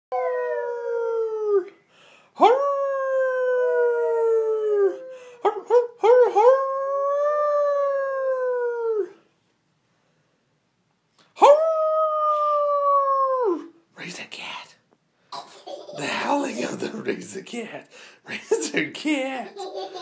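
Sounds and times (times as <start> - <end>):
toddler howling: 0.1 - 1.7, 2.4 - 9.2.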